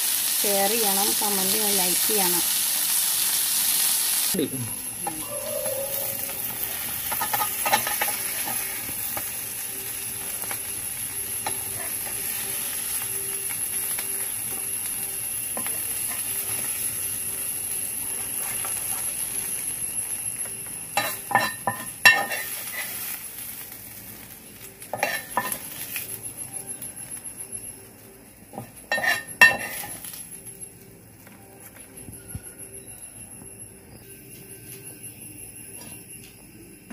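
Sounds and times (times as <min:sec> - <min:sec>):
fish sizzling in a pan: 0:00.0 - 0:30.8
metal spatula scraping a pan: 0:24.9 - 0:25.7, 0:28.9 - 0:30.1.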